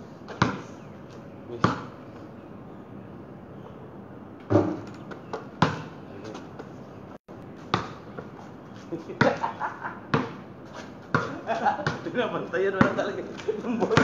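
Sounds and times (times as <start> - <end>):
basketball bouncing on concrete: 0.3 - 0.7, 1.6 - 1.9, 4.5 - 6.0, 7.7 - 8.3, 9.2 - 9.4, 10.1 - 10.4, 11.1 - 12.1, 12.7 - 14.0.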